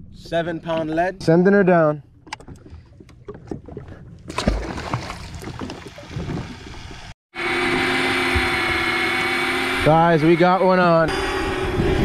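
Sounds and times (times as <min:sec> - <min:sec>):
wind and water hiss: 0:04.9 - 0:07.1
steady motor hum: 0:06.4 - 0:12.0.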